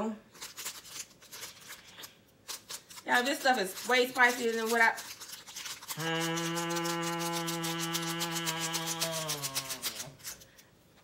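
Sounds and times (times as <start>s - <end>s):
foil packet rustling: 0.3s - 10.7s
woman humming: 5.9s - 10.1s.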